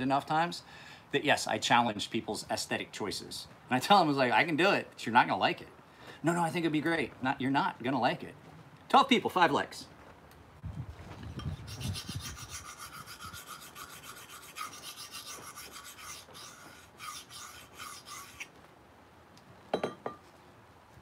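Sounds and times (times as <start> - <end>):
knife scraping on sharpening stone: 11.4 - 18.4.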